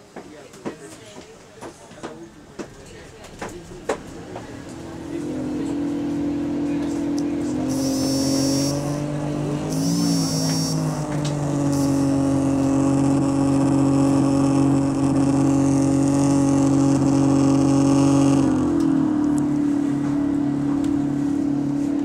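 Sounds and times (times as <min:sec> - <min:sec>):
bus engine drone: 0:01.6 - 0:22.0
brief high whines: 0:07.7 - 0:09.1, 0:09.7 - 0:13.0.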